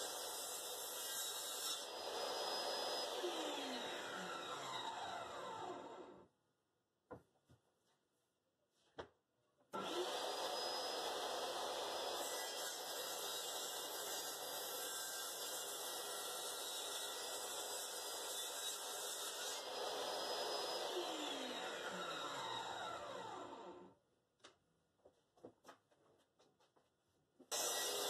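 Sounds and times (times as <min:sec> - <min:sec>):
saw blade cutting wood: 0:00.0 - 0:06.0, 0:09.8 - 0:23.5, 0:27.5 - 0:28.0
table saw running: 0:01.6 - 0:06.2, 0:09.8 - 0:15.2, 0:18.7 - 0:23.8, 0:27.5 - 0:28.0.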